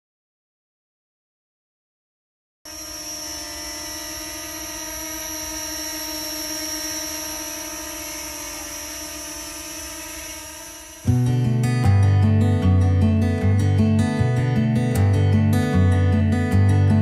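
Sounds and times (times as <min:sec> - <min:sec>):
drone propellers whining: 0:02.7 - 0:11.6.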